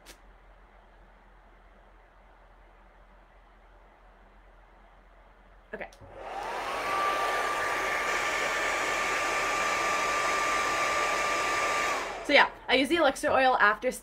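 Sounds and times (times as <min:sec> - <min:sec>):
hair dryer running: 0:06.0 - 0:12.9.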